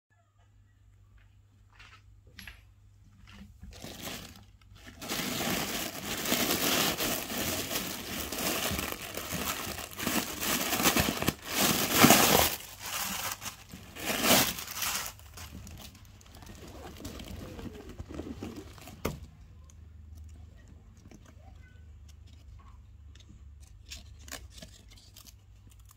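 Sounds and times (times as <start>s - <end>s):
packing paper crinkling: 3.7s - 19.2s, 23.7s - 25.9s.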